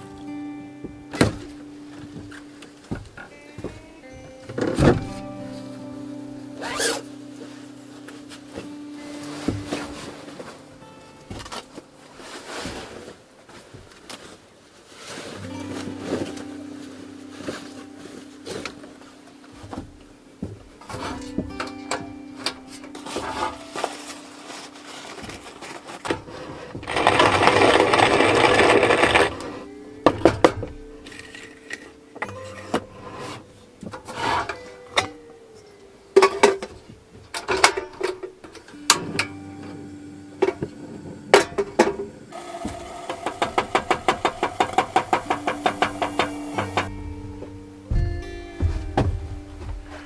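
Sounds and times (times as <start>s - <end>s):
coffee mill grinding beans: 26.4s - 29.7s, 42.4s - 46.9s.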